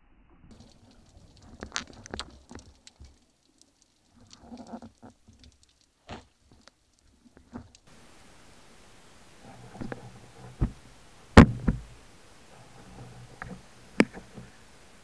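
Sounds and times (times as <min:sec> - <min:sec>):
sharp clicks and knocks: 0:00.5 - 0:07.9, 0:11.4 - 0:12.0
underwater murmur of moving water: 0:00.5 - 0:15.0.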